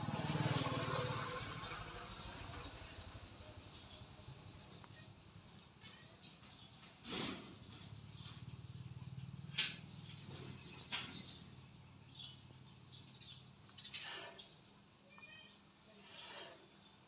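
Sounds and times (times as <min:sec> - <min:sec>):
faint high chirps: 0:13.8 - 0:16.9.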